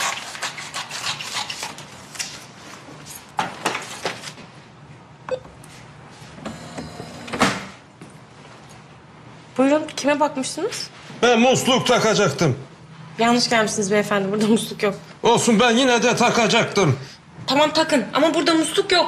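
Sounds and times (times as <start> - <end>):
people moving and handling things: 0.3 - 9.0.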